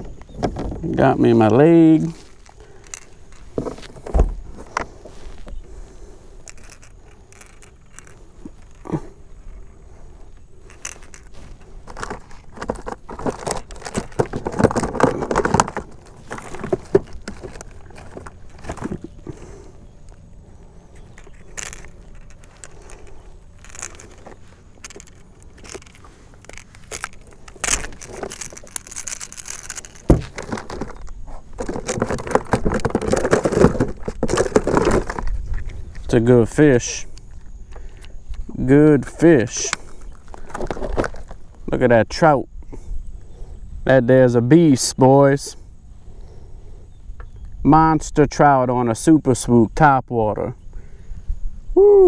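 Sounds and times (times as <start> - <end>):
handling clicks knocks and rustles: 0.0 - 5.7, 6.4 - 42.2.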